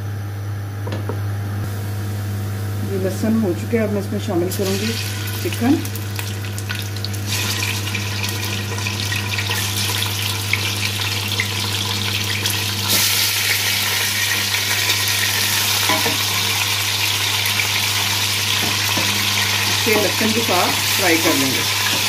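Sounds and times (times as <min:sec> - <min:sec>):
chicken sizzling in hot oil: 0:04.5 - 0:22.0.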